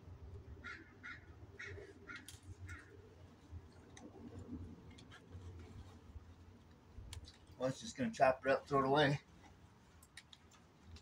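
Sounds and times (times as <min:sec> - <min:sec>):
crow cawing: 0:00.6 - 0:02.9.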